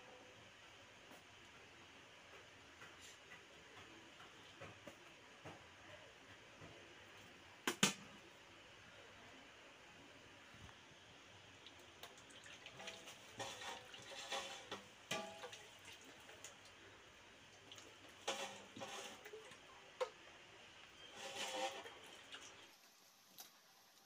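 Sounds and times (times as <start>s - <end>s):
rice rustling in metal pot: 12.1s - 19.8s, 20.9s - 23.6s.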